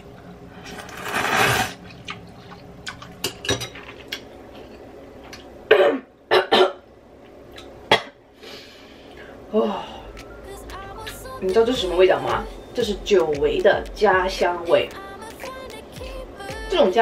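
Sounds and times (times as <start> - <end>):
woman coughing: 5.7 - 6.8.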